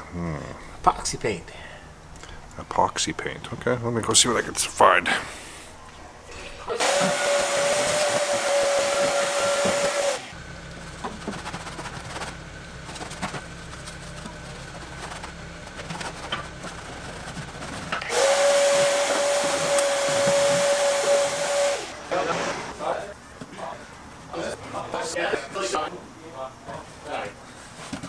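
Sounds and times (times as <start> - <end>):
shop vacuum running: 6.3 - 23.1.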